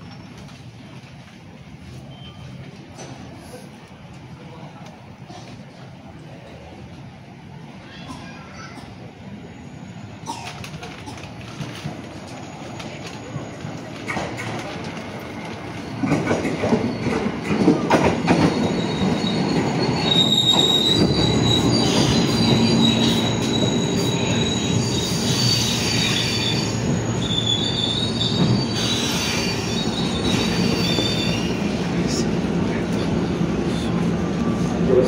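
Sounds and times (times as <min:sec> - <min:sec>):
train rumble: 0:00.0 - 0:35.0
train wheels clacking: 0:10.3 - 0:31.5
high-pitched wheel squeal: 0:18.6 - 0:31.6.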